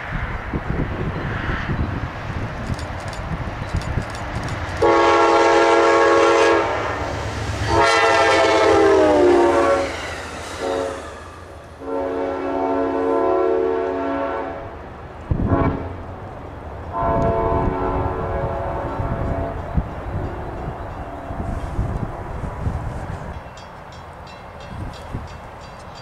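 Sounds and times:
engine and wheels rumbling: 0.0s - 13.3s
locomotive horn blasts: 4.8s - 7.0s, 7.6s - 10.0s, 10.6s - 11.2s, 11.8s - 14.8s, 15.4s - 16.0s, 16.9s - 19.7s.

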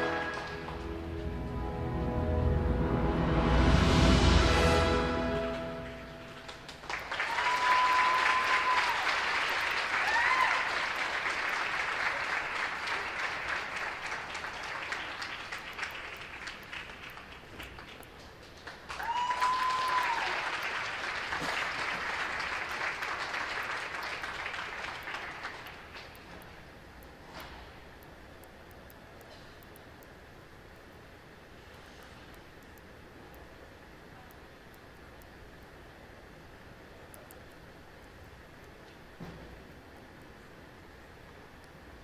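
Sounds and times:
audience applauding and cheering: 0.0s - 2.9s, 4.3s - 26.2s
program music: 0.0s - 6.4s.

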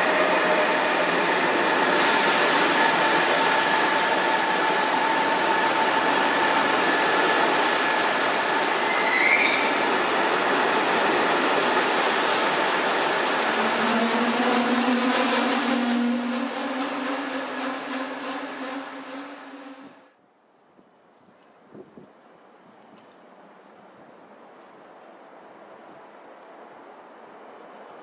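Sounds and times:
train wheels rumbling on rail: 0.0s - 20.2s
rising wheel squeal: 8.8s - 9.8s.

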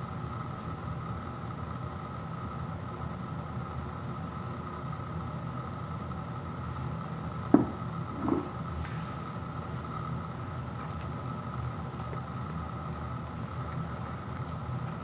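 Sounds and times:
low background hum: 0.0s - 15.0s
ceramic bowl and spoon knocks: 7.6s - 8.5s.

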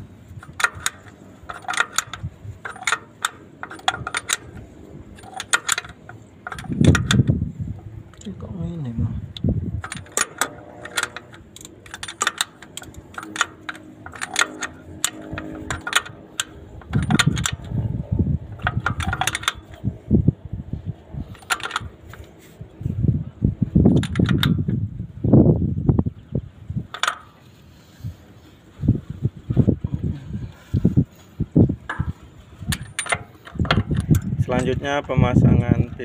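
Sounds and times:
metal tools clinking: 0.4s - 7.3s, 9.8s - 17.8s, 18.5s - 19.8s, 21.3s - 22.5s, 26.9s - 28.0s, 31.8s - 35.1s
dull knocks and handling noise: 31.8s - 34.4s.

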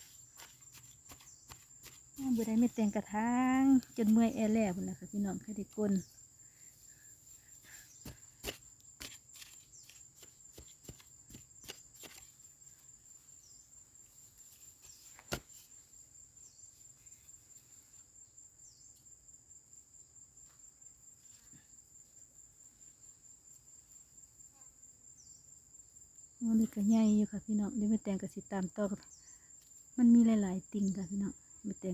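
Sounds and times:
digging in dry soil: 0.0s - 4.9s, 7.5s - 12.5s, 14.7s - 15.7s
insects trilling: 0.0s - 31.9s.

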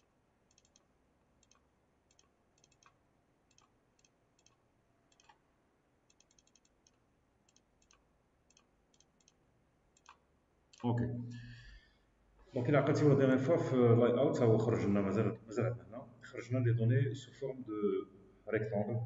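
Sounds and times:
faint computer mouse clicks: 0.5s - 5.4s, 6.1s - 9.4s, 10.0s - 10.9s.

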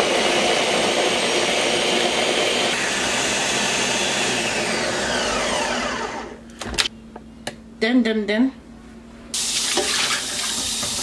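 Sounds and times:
blender running: 0.0s - 6.4s
motor winding down whine: 2.7s - 6.4s.

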